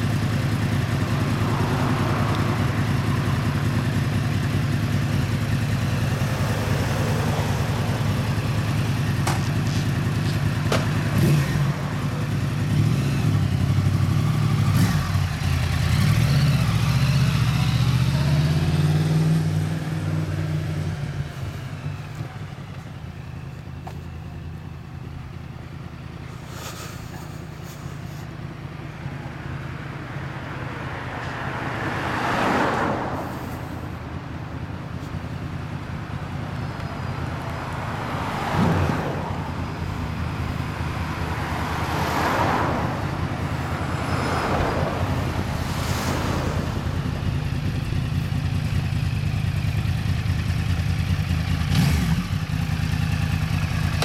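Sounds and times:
motorcycle engine at low revs: 0:00.0 - 0:30.0, 0:33.2 - 0:54.0
cars swishing past: 0:00.6 - 0:03.9, 0:05.7 - 0:22.8, 0:29.6 - 0:35.7, 0:36.8 - 0:49.0.

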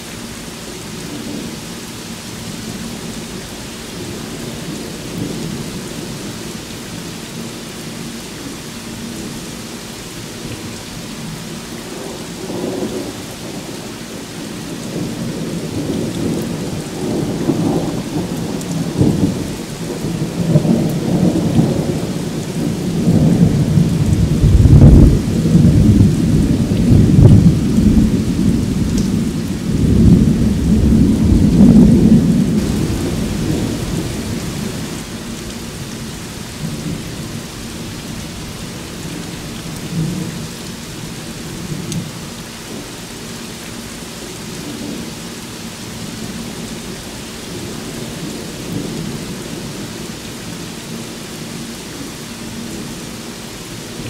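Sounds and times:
heavy rain falling: 0:00.0 - 0:54.0
thunder rolling: 0:15.0 - 0:35.0.

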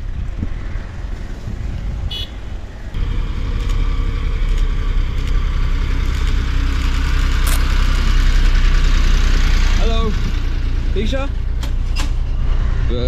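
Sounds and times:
road noise: 0:00.0 - 0:13.0
vehicle engine running: 0:03.0 - 0:13.0.

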